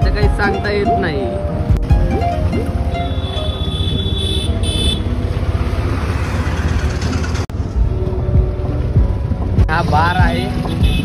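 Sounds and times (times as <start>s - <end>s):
street traffic rumble: 0.0s - 11.0s
high-pitched vehicle horn tooting: 3.0s - 5.1s.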